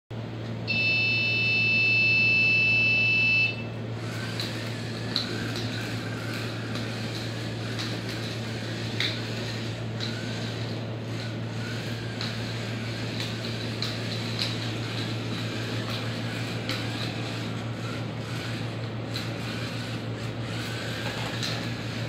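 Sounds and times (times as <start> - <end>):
high electronic buzzer beep: 0.7 - 3.7
small gear motors whirring: 4.0 - 22.0.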